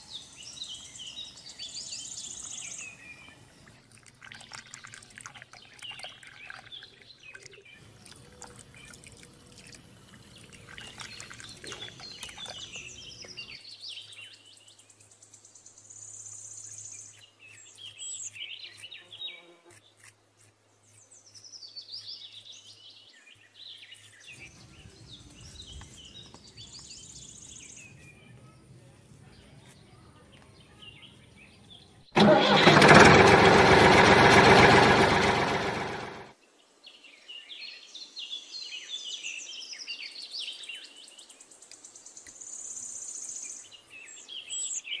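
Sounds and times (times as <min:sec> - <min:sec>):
birds chirping and trilling: 0:00.0 - 0:20.0, 0:33.9 - 0:45.0.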